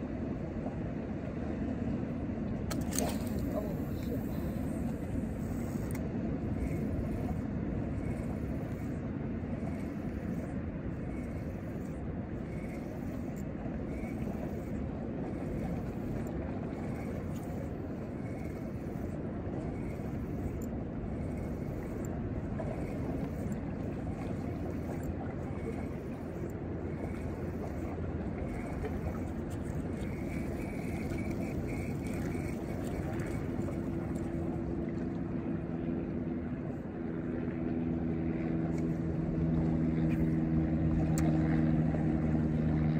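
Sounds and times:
motorboat engine hum: 0.0s - 42.9s
water noise: 0.0s - 42.9s
wind rumble on microphone: 0.0s - 42.9s.

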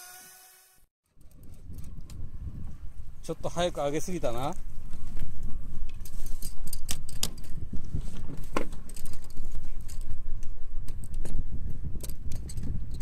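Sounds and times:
wind and boat rumble: 1.3s - 13.0s.

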